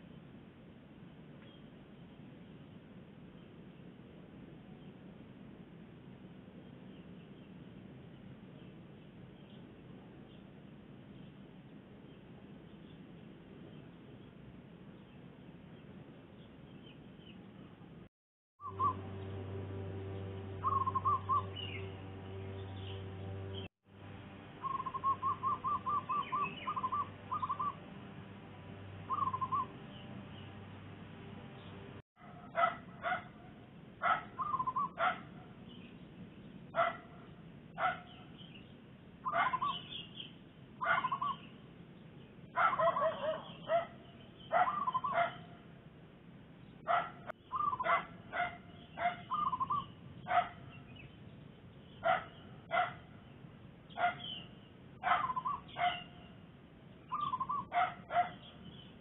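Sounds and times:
dove cooing: 24.6s - 27.8s, 29.1s - 29.7s, 34.4s - 35.0s
dog barking: 32.2s - 35.4s, 36.8s - 37.2s, 37.8s - 38.2s, 39.3s - 39.8s, 40.8s - 41.3s, 42.6s - 45.5s, 46.8s - 49.4s, 50.2s - 50.6s, 52.0s - 53.1s, 54.0s - 54.4s, 55.0s - 56.1s, 57.6s - 58.5s.

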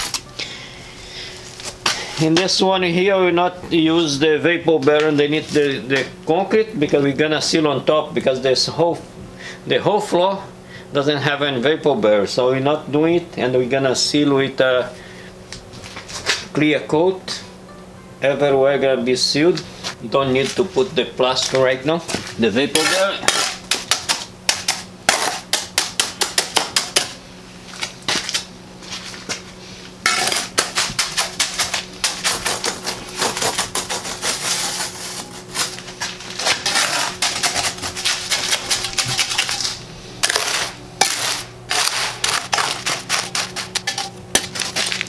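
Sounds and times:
trowel scraping wet concrete: 22.5s - 27.1s, 30.1s - 45.0s.

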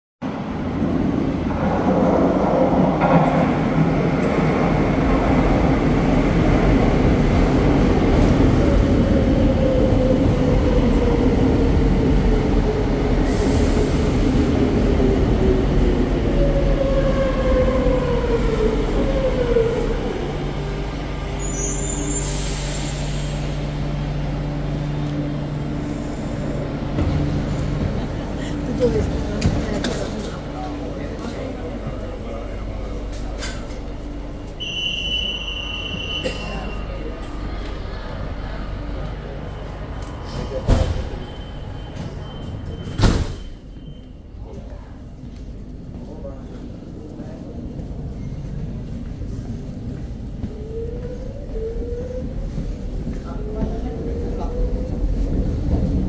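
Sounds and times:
stopped train humming: 0.3s - 42.9s
train running noise: 0.4s - 56.0s
train brakes whine and wheel squeal: 21.2s - 23.6s, 34.5s - 37.1s, 39.4s - 44.5s.

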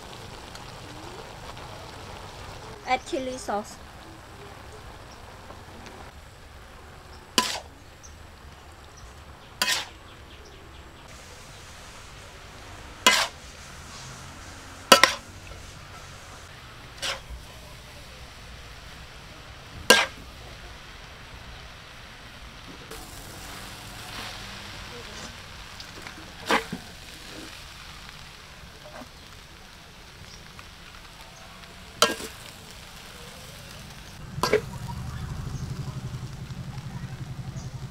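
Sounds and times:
faint steady hiss: 0.0s - 37.9s
noodles sizzling in a wok: 0.0s - 37.9s
metal spatula scraping: 7.4s - 7.7s, 9.6s - 10.0s, 13.0s - 17.6s, 19.9s - 20.2s, 23.4s - 27.6s, 32.0s - 32.5s, 34.4s - 34.7s
metal spatula clanking on wok: 14.9s - 15.2s, 19.9s - 20.2s, 32.0s - 32.4s
sharp metal clank: 14.9s - 15.2s.

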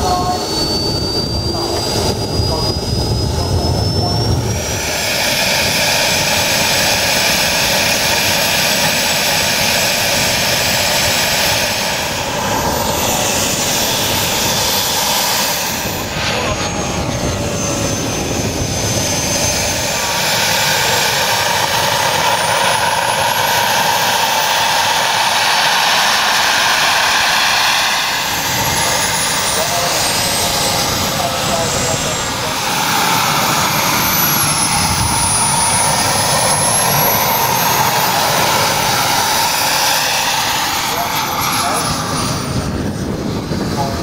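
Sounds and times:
model jet turbine engine running: 0.0s - 44.0s.

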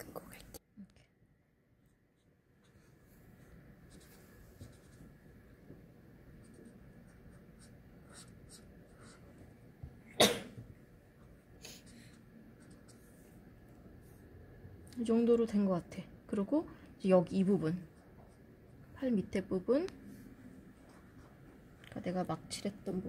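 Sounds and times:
marker rubbing on paper: 3.9s - 5.1s, 6.4s - 9.3s.

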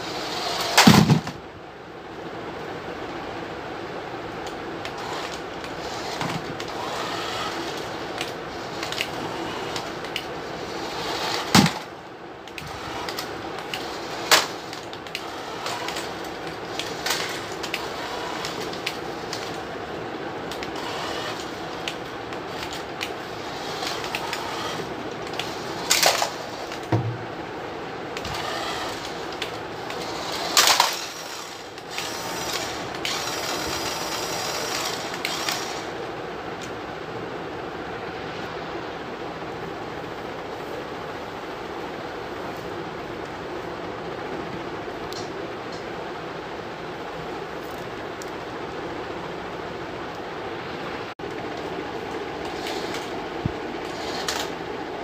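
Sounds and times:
small electric motor whirring: 0.0s - 1.0s, 4.9s - 11.9s, 12.5s - 19.7s, 20.5s - 26.9s, 28.2s - 36.0s, 52.4s - 53.2s, 53.8s - 54.6s
plastic wheels rattling on tile: 23.5s - 26.9s, 29.9s - 35.9s.

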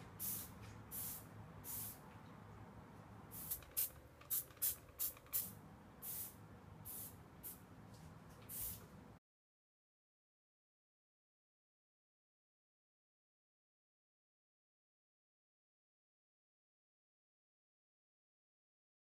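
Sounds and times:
spray bottle squirting: 3.4s - 5.5s, 8.5s - 8.8s.

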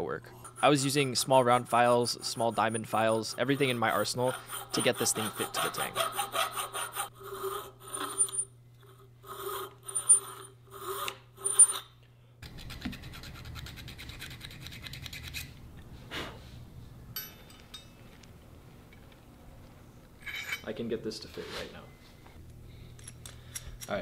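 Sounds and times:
faint steady hum: 0.0s - 24.0s
hand file rasping on metal: 0.3s - 11.8s.

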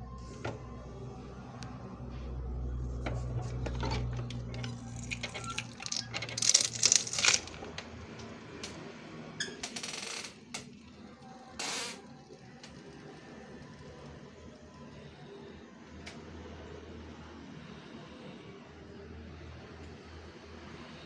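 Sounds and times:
cup sealer clicks and rattles: 4.6s - 7.8s.

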